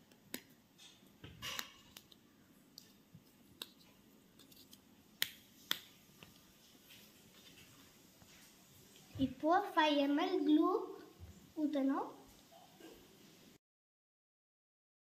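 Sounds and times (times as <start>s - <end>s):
small objects clicking and tapping: 0.1s - 6.4s.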